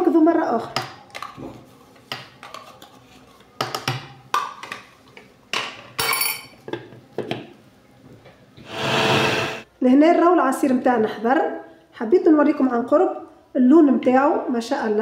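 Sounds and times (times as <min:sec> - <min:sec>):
rushing noise: 0:08.7 - 0:09.6.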